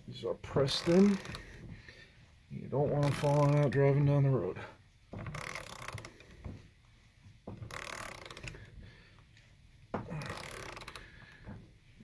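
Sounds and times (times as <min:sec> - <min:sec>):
ratchet wrench clicking: 0:05.3 - 0:06.2, 0:07.7 - 0:08.6, 0:10.2 - 0:11.0.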